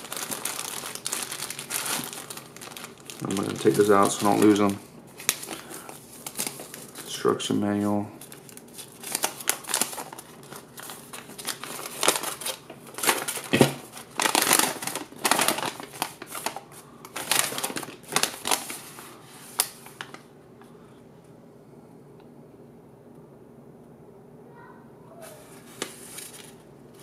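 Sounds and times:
paper crinkling and rustling: 0.0 - 7.6, 8.2 - 20.3, 25.2 - 27.0.

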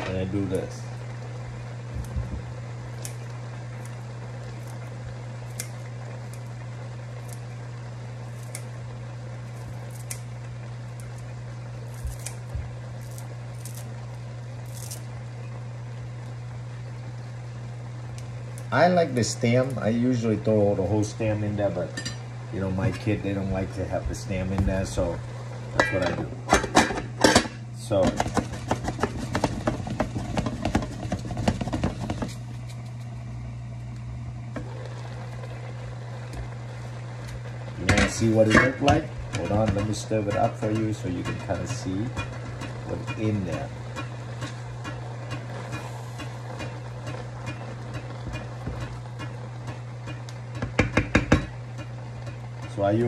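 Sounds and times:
steady low hum: 0.0 - 53.0
scissors snipping: 11.9 - 12.4.

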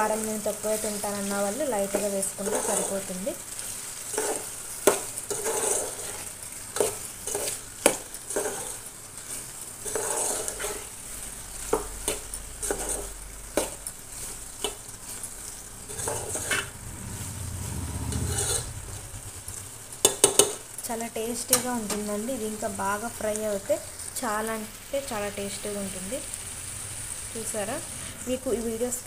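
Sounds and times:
vegetables sizzling in oil: 0.0 - 29.0
metal spoon scraping a pot: 1.9 - 3.2, 4.1 - 8.9, 9.8 - 10.9, 12.1 - 13.7, 15.8 - 16.8, 18.1 - 19.0.

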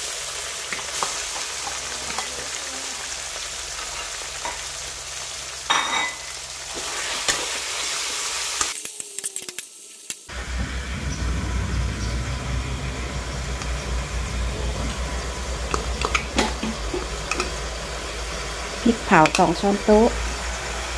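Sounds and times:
pork sizzling in a wok: 0.0 - 20.9
spatula scraping a wok: 6.2 - 8.8.

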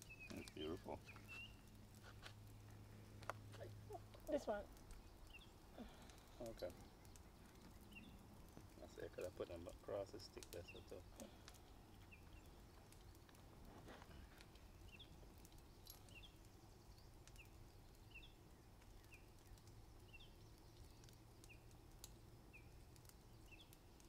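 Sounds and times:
bird chirping faintly: 0.0 - 1.8, 3.6 - 13.4
faint clicks: 18.8 - 22.2.

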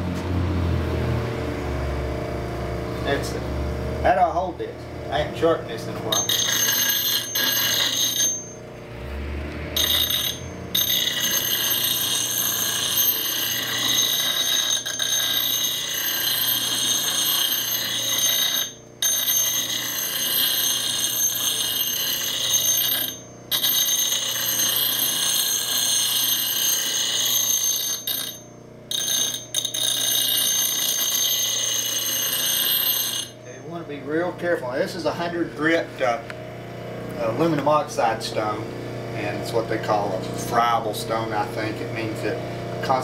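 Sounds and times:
bench grinder motor whine: 0.0 - 34.4.

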